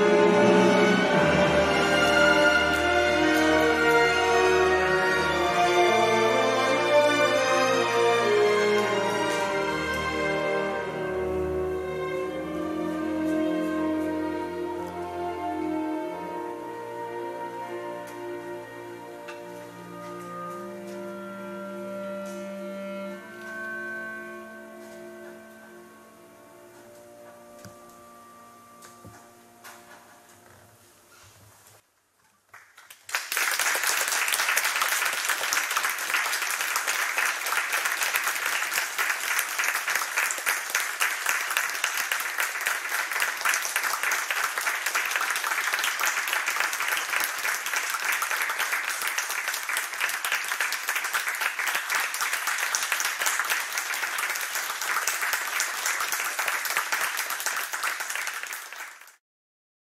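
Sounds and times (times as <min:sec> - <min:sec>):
audience applauding: 0:32.5 - 0:59.2.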